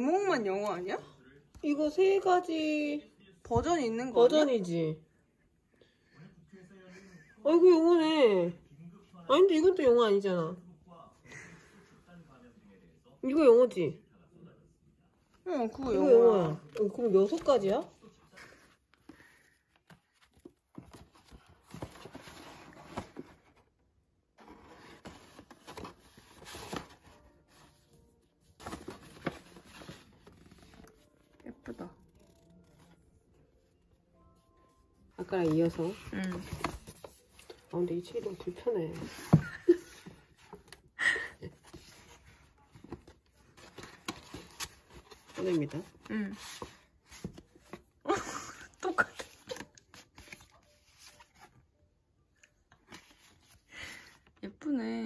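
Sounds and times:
paper rustling: 0:28.5 - 0:31.3, 0:35.2 - 0:40.9, 0:41.6 - 0:48.0, 0:48.8 - 0:51.6
postcards rustling and tapping: 0:35.2 - 0:40.8.

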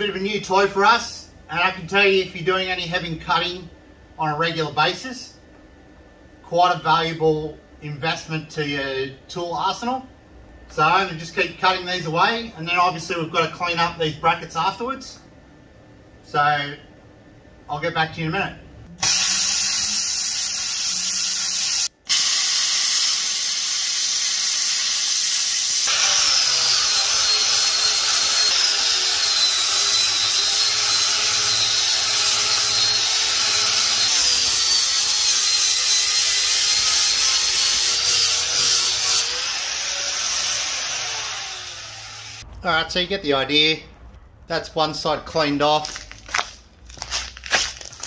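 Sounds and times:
angle grinder grinding metal: 0:19.0 - 0:42.4.

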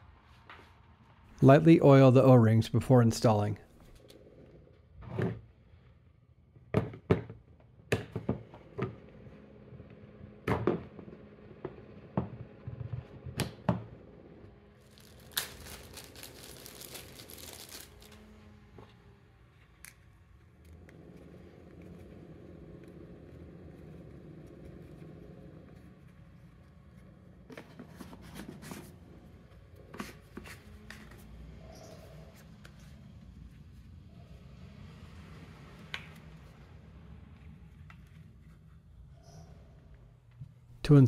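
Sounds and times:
plastic bag crinkling: 0:14.8 - 0:18.4.

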